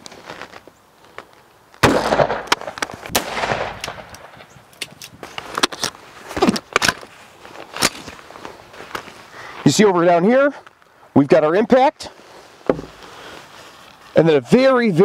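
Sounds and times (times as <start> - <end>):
rifle gunshot: 1.8 - 4.5.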